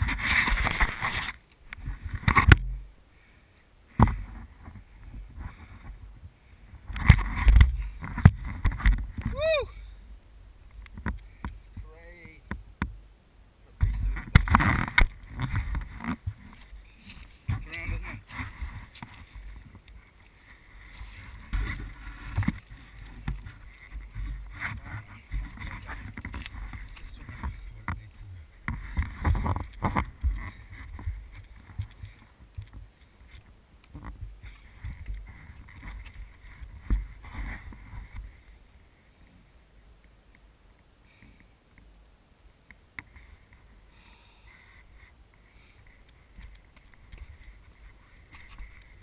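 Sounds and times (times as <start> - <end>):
wind rumble on microphone: 0.0 - 3.0, 3.9 - 13.0, 13.8 - 38.8
faint outdoor hiss: 0.0 - 49.0
footsteps on dry sticks: 13.8 - 38.4, 45.7 - 49.0.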